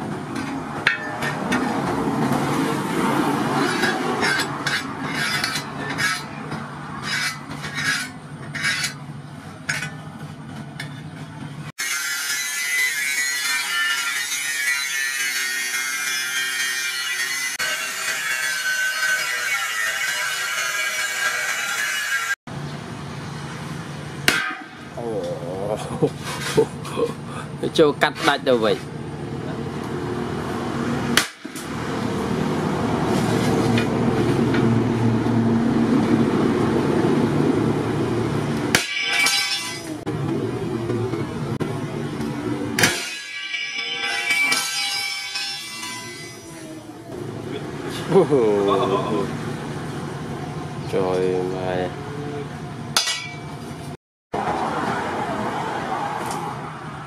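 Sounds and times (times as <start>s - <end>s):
sledgehammer clanking on metal: 0.3s - 2.0s, 24.2s - 24.9s, 38.7s - 40.0s, 53.0s - 53.6s
angle grinder cutting steel: 3.4s - 9.0s, 11.8s - 22.4s, 38.6s - 40.1s, 42.5s - 49.2s.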